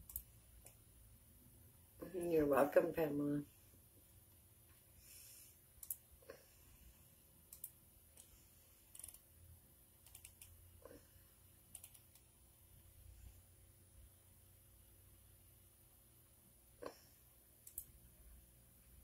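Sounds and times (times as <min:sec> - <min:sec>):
faint typing clicks: 0:00.0 - 0:00.8, 0:05.8 - 0:06.0, 0:07.5 - 0:09.3, 0:10.0 - 0:10.6, 0:11.7 - 0:12.3, 0:17.6 - 0:18.0.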